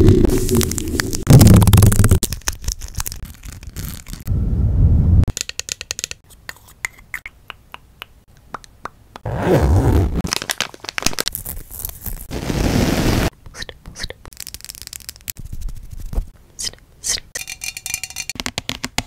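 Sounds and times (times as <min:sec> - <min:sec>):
rubbing against microphone: 0:15.4 - 0:16.8.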